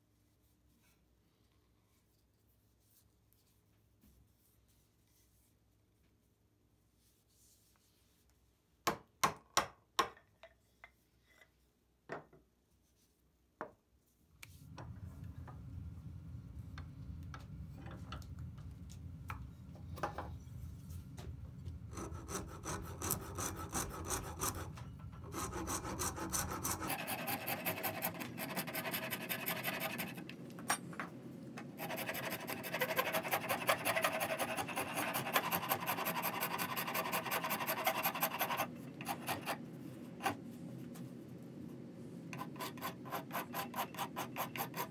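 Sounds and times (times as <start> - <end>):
hand file scraping wood: 21.9 - 30.2, 31.8 - 39.6, 42.3 - 44.9.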